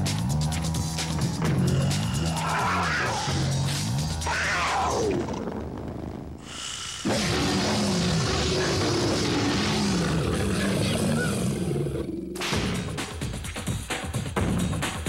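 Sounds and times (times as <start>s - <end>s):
music with sharp beats: 0.0s - 4.3s, 12.4s - 15.0s
low wavering roar: 1.4s - 6.4s, 7.0s - 12.4s.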